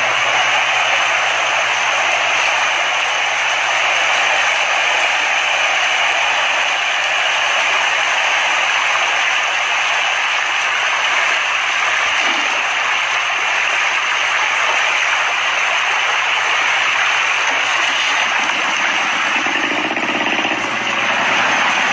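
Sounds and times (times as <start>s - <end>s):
fish splashing in pond: 11.6s - 21.9s.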